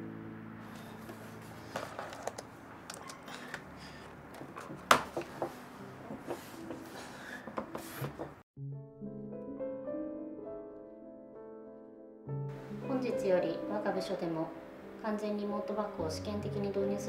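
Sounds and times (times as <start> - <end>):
piano music: 0.0 - 17.0
rustling on a table: 0.8 - 2.5, 4.4 - 8.4.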